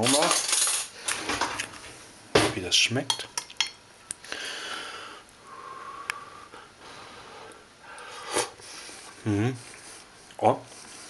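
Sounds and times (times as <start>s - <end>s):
person blowing and slurping: 8.1s - 9.8s.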